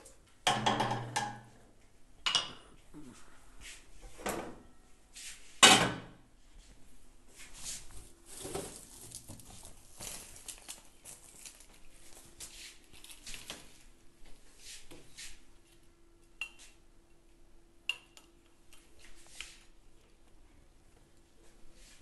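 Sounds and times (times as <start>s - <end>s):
faint steady hum: 0.0s - 22.0s
rustles and scrapes: 6.6s - 13.9s.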